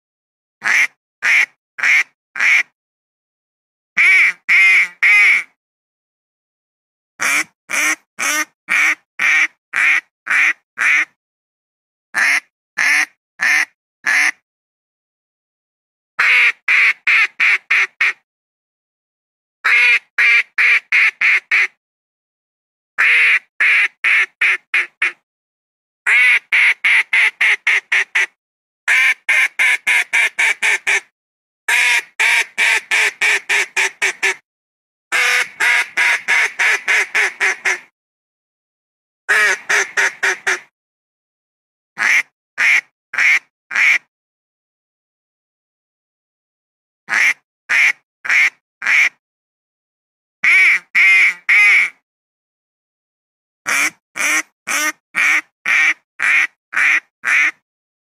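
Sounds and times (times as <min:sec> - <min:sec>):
duck quacking: 0:00.6 - 0:02.7, 0:04.0 - 0:05.5, 0:07.2 - 0:11.1, 0:12.2 - 0:14.4, 0:16.2 - 0:18.2, 0:19.6 - 0:21.7, 0:23.0 - 0:25.2, 0:26.1 - 0:28.3, 0:28.9 - 0:31.1, 0:31.7 - 0:34.4, 0:35.1 - 0:37.9, 0:39.3 - 0:40.7, 0:42.0 - 0:44.0, 0:47.1 - 0:49.2, 0:50.4 - 0:52.0, 0:53.7 - 0:57.6.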